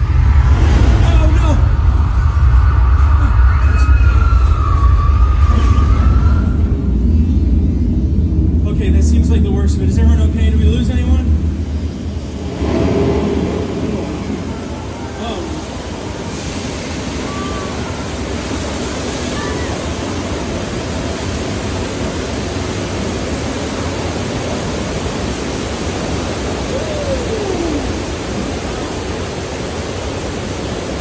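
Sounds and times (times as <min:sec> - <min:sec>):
loud rushing noise: 0:00.0 - 0:31.0
brief falling tone: 0:03.2 - 0:07.0.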